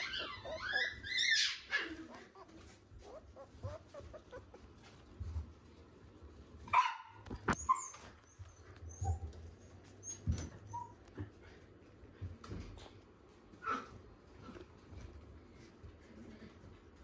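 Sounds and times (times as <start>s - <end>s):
puppies yipping: 0.0s - 5.0s.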